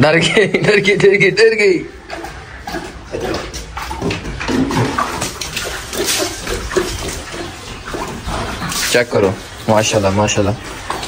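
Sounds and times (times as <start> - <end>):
lion lapping water: 1.2 - 11.0
water poured from a jug: 4.0 - 9.5.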